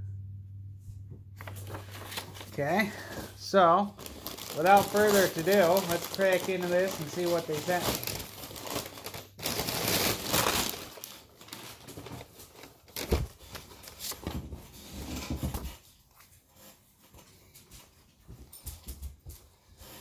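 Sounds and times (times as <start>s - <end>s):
packaging crinkling and rustling: 1.4s - 16.7s.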